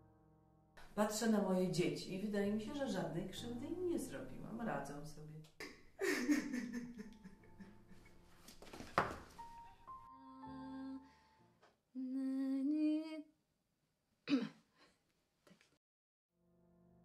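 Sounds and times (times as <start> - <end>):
woman humming: 12.0 - 13.3.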